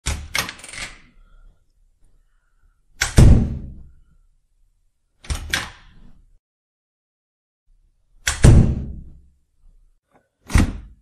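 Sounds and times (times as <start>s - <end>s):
door shutting with heavy thud: 3.2s - 3.7s, 8.4s - 9.0s, 10.5s - 11.0s
door latch and handle clicks: 5.2s - 5.8s.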